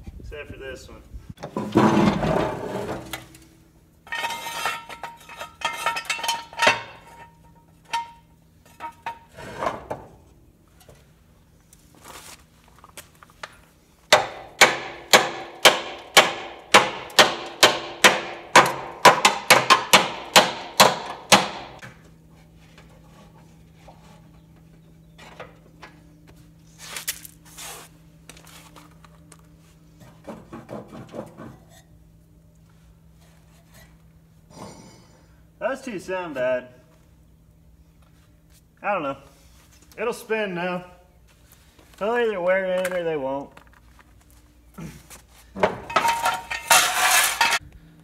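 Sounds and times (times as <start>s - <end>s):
hammer striking metal: 14.1s - 21.8s.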